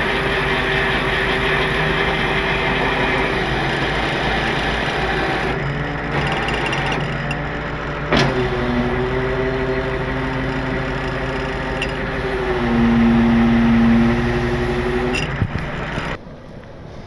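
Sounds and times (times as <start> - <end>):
tow truck hydraulics whining: 0.0 - 16.2
sharp clunk: 8.1 - 8.5.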